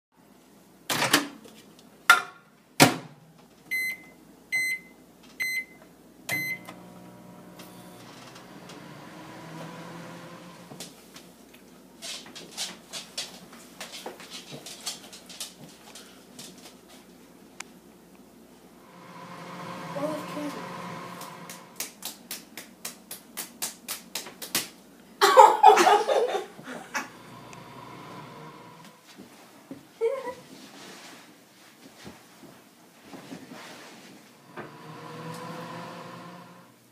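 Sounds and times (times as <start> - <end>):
microwave keypad beeps: 3.7 - 6.7
microwave oven humming: 6.3 - 10.8, 18.8 - 21.8, 26.7 - 29.0, 34.4 - 36.9.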